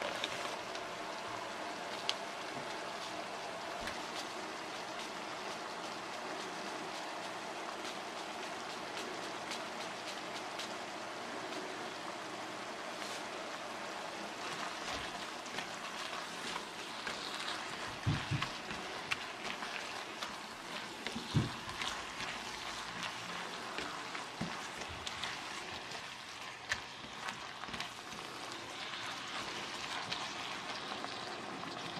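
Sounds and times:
beef and onions sizzling in a pan: 0:11.9 - 0:31.9.

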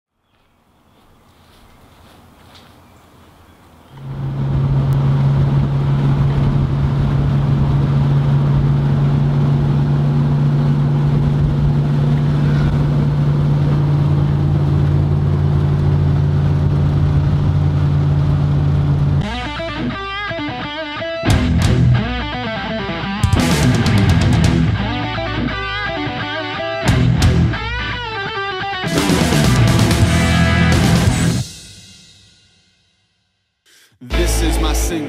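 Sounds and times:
low distorted drone: 0:04.0 - 0:31.7, 0:34.0 - 0:35.0
electric guitar riff: 0:18.9 - 0:32.0, 0:34.0 - 0:35.0.

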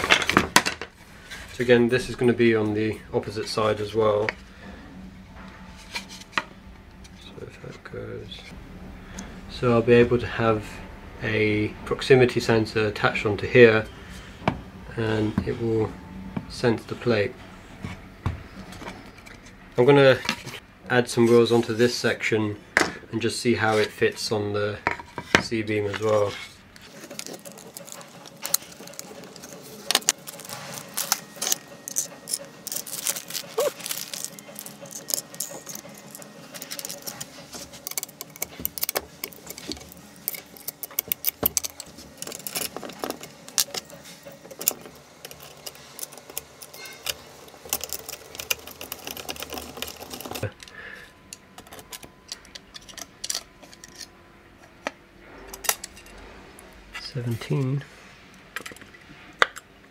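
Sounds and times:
metal screws and nuts clinking: 0:27.0 - 0:50.7.

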